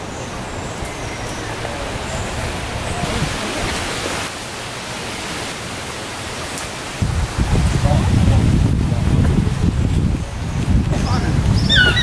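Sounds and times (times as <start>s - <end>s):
forest ambience hiss: 0.0s - 7.9s.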